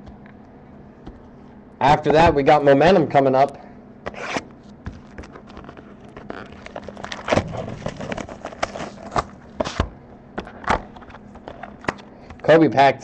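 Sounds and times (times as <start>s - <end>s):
cardboard and foil crackling: 5.0s - 9.8s.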